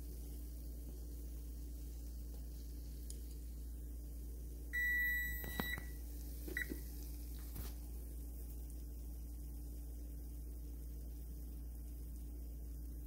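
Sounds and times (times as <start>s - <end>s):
donuts frying in oil: 0.0s - 13.0s
electronic beep: 4.8s - 5.9s.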